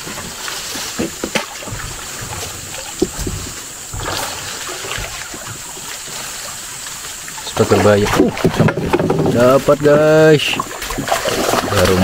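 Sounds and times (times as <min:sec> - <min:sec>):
fish splashing in water: 0:00.0 - 0:12.0.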